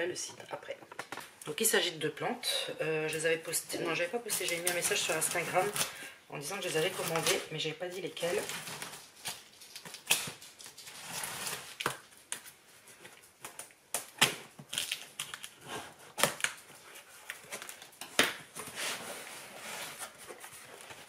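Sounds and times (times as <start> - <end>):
cardboard rustling and scraping: 10.7 - 11.8, 18.5 - 21.0.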